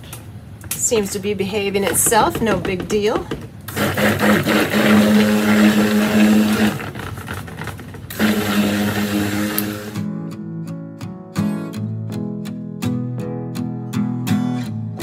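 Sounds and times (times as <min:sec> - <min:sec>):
stick blender motor hum: 0:03.7 - 0:10.1
acoustic guitar music: 0:08.5 - 0:15.0.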